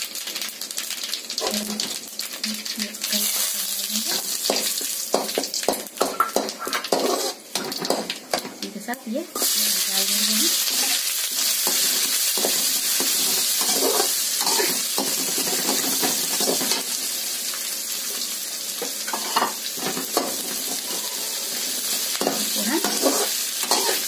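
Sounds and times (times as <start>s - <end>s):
onion sizzling in oil: 0.0s - 24.0s
spatula scraping pan: 4.0s - 8.0s, 11.6s - 16.8s, 19.1s - 21.6s, 22.2s - 24.0s.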